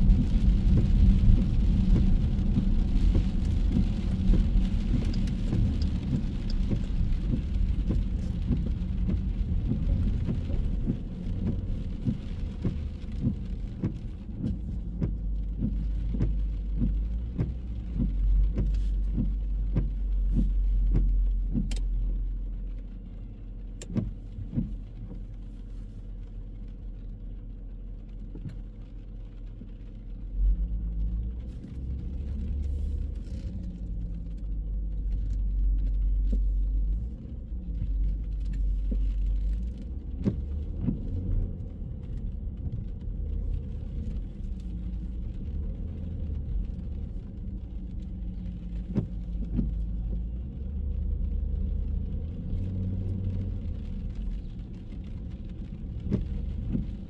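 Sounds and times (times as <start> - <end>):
cars passing on wet street: 0.0 - 57.0.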